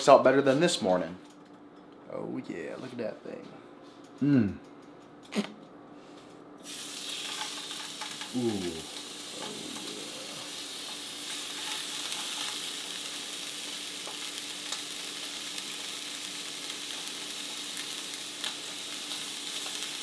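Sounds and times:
meat sizzling in a frying pan: 0:06.6 - 0:20.0.

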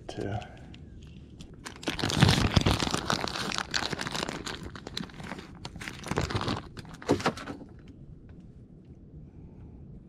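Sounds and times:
plastic bag crinkling: 0:01.2 - 0:07.6.

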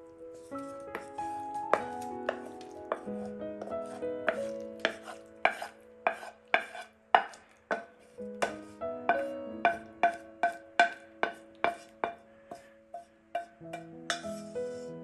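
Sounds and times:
soft background music: 0:00.0 - 0:15.0
knife chopping on cutting board: 0:04.3 - 0:08.6.

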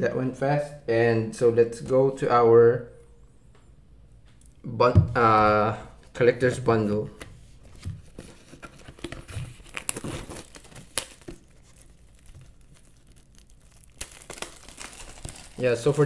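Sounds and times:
plastic shrink wrap tearing: 0:08.5 - 0:16.0.

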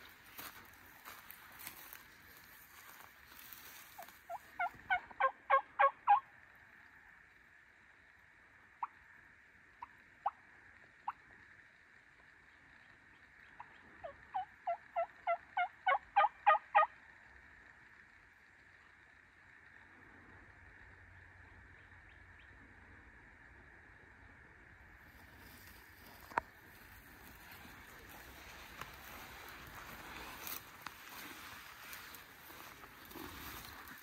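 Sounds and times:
turkey call yelps: 0:03.9 - 0:06.3, 0:08.8 - 0:09.0, 0:13.6 - 0:17.0.

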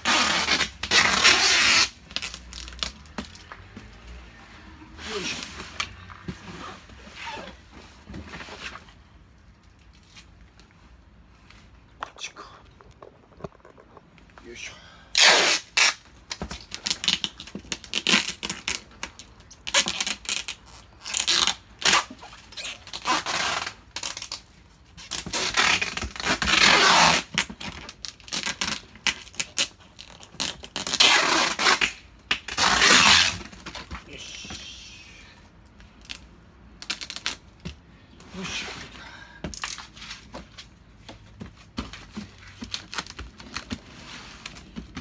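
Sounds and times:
packing wrap ripping off roll: 0:16.6 - 0:24.4.

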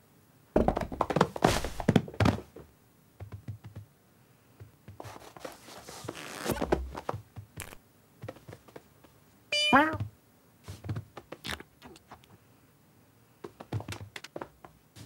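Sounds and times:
cartoon scratching and scrabbling: 0:05.0 - 0:07.0
rustling: 0:05.0 - 0:09.1.

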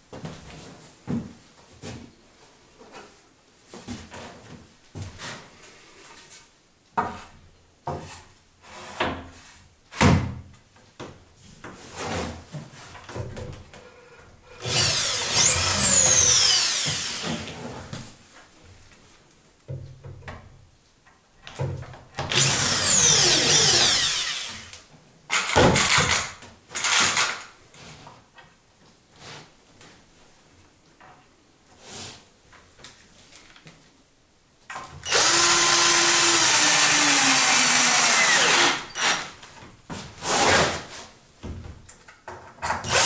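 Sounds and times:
electric drill boring into wood: 0:14.6 - 0:17.5, 0:22.3 - 0:27.4, 0:35.0 - 0:39.3.

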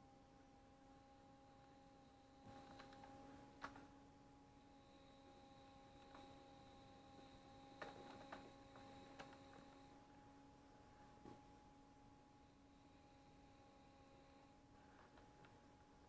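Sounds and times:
pottery wheel humming: 0:00.0 - 0:16.0.

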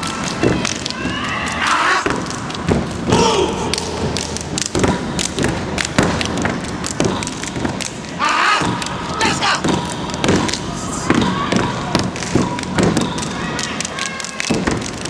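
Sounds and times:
hands clapping and slapping body: 0:00.0 - 0:15.0.

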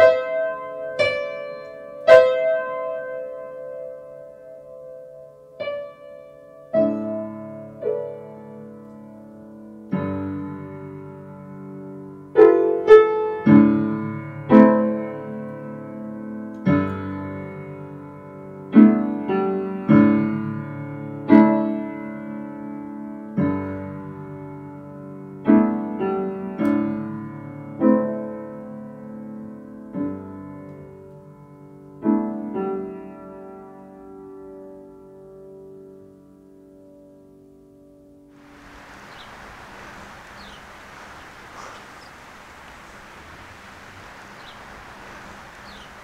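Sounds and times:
slow solo piano: 0:00.0 - 0:37.1, 0:38.4 - 0:46.0.

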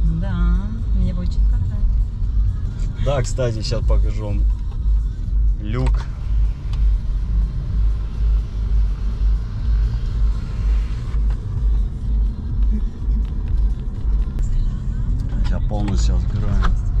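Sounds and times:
road and engine noise in car: 0:00.0 - 0:17.0
electric sunroof motor running: 0:08.1 - 0:11.2.

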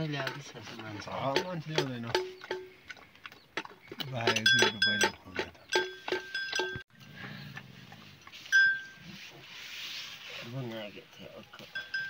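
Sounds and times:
metal livestock bells clinking: 0:01.2 - 0:02.8, 0:04.0 - 0:06.8, 0:08.4 - 0:09.1, 0:11.1 - 0:12.0.

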